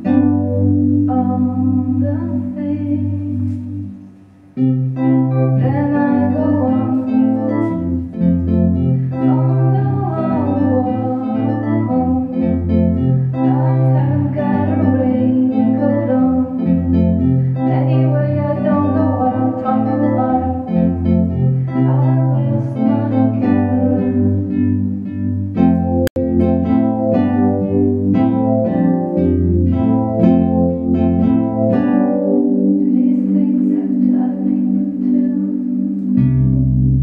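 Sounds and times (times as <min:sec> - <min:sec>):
synthesizer chords and bass: 0:00.0 - 0:33.1, 0:34.8 - 0:37.0
electric guitar: 0:00.0 - 0:37.0
woman singing: 0:01.1 - 0:03.8, 0:05.6 - 0:07.8, 0:09.1 - 0:12.4, 0:13.4 - 0:16.7, 0:17.6 - 0:20.9, 0:21.8 - 0:24.4, 0:32.8 - 0:35.9.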